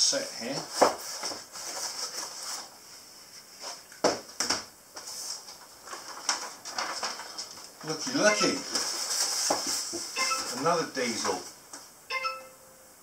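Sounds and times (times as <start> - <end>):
packaging rustling: 5.3 - 10.7.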